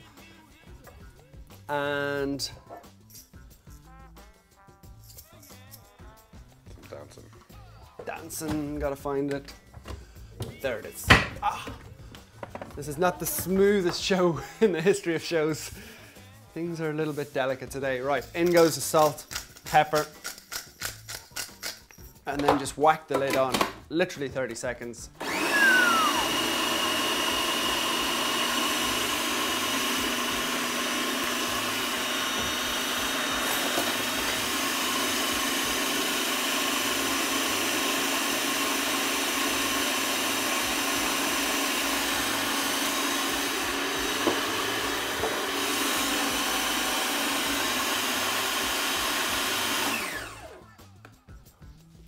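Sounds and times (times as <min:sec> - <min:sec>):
food processor motor whining: 0:25.2 - 0:50.7.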